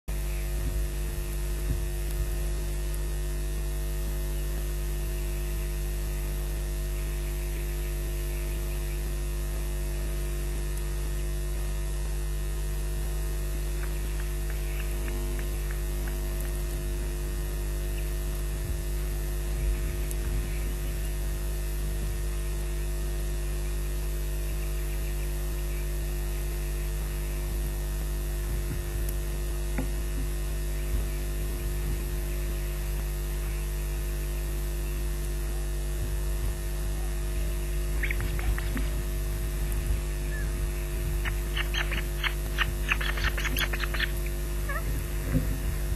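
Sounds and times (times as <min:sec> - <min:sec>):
electrical mains hum: 0:00.0 - 0:45.9
constant hiss: 0:09.9 - 0:45.9.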